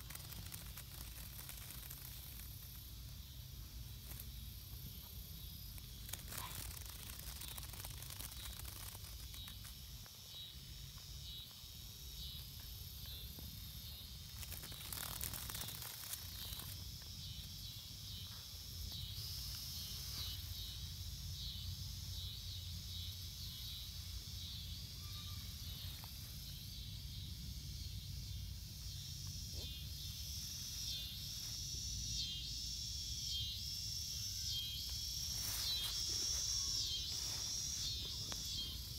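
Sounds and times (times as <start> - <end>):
rustling in grass: 0.0 - 11.1, 12.3 - 17.3, 19.1 - 21.0, 34.6 - 38.9
insects chirping: 0.0 - 38.9.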